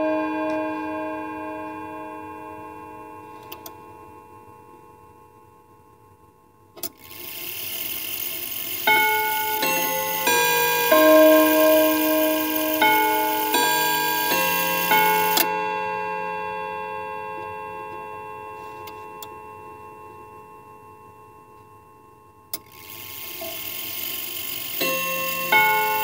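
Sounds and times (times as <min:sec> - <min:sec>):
chime rods ringing a tune: 0:00.0 - 0:03.6, 0:08.3 - 0:18.7, 0:23.8 - 0:26.0.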